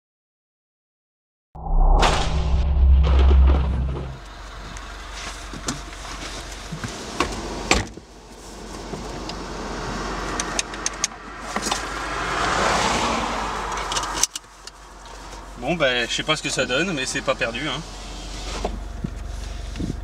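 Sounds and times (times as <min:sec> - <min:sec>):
sharp knock: 0:01.6 - 0:04.2
deep intro sting: 0:01.6 - 0:04.7.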